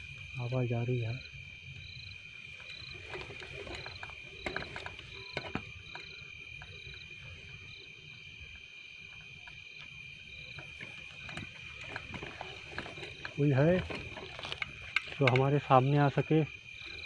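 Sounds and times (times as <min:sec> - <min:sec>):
crickets trilling: 0:00.0 - 0:17.0
short cricket chirp: 0:00.0 - 0:17.0
sharp clicks and crackles: 0:09.4 - 0:16.2.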